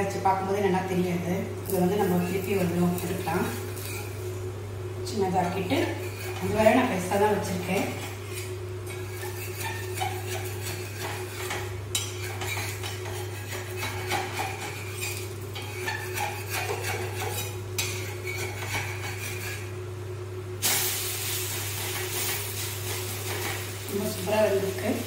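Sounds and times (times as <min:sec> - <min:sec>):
steady low hum: 0:00.0 - 0:25.0
batter sizzling on hot griddle: 0:01.6 - 0:04.4, 0:05.8 - 0:19.8, 0:20.6 - 0:25.0
metal spatula scraping on griddle: 0:02.1 - 0:04.3, 0:05.8 - 0:19.8, 0:20.9 - 0:25.0.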